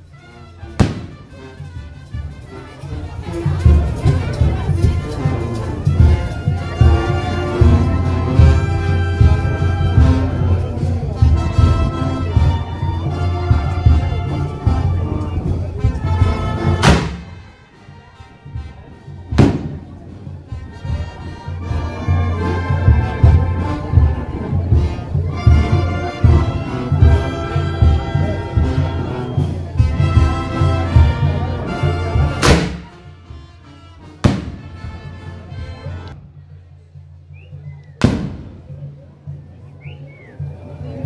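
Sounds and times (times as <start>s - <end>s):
band music with heavy bass: 0.0s - 36.3s, 37.3s - 39.6s
mortar launch thump: 0.8s - 1.2s, 16.8s - 17.4s, 19.4s - 20.0s, 32.4s - 32.9s, 34.3s - 34.6s
firework bang: 0.8s - 1.3s, 16.8s - 17.4s, 19.4s - 20.0s, 32.4s - 33.0s, 34.2s - 34.7s, 38.0s - 38.6s.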